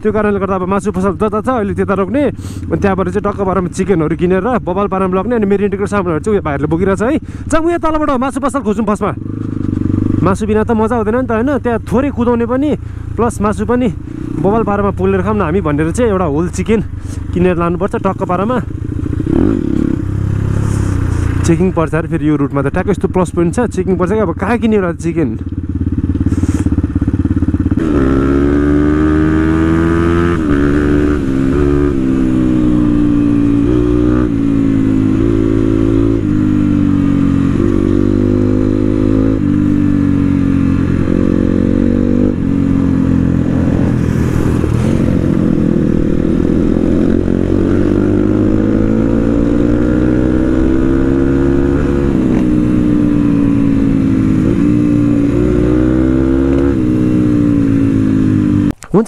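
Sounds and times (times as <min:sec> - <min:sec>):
motorcycle engine revving: 0:08.3 - 0:58.8.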